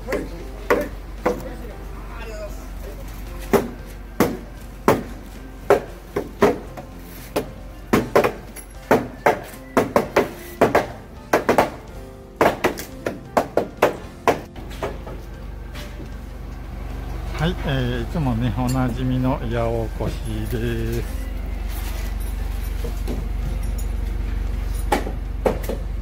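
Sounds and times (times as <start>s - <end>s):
background music: 0.0s - 26.0s
mallet knocking wooden beams: 0.1s - 1.5s, 3.5s - 15.2s, 24.9s - 25.9s.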